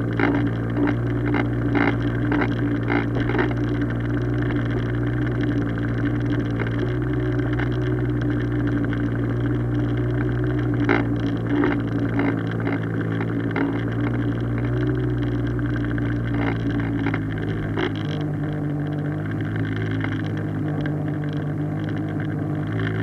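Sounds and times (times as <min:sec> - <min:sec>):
outboard motor running: 0:00.0 - 0:23.0.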